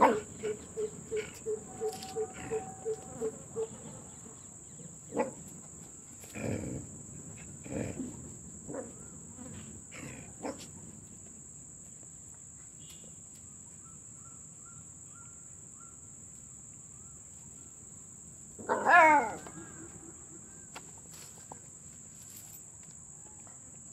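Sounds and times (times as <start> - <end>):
dog whining: 0.0 - 4.0
crickets chirping: 0.0 - 23.9.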